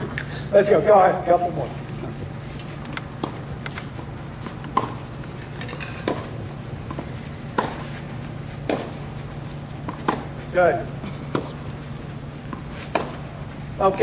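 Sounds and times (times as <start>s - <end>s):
steady low hum: 0.0s - 14.0s
tennis balls struck by racquets: 2.9s - 13.5s.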